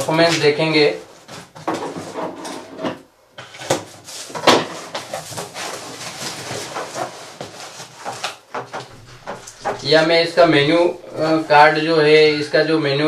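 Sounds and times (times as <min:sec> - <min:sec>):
packing tape tearing: 0:03.6 - 0:08.4.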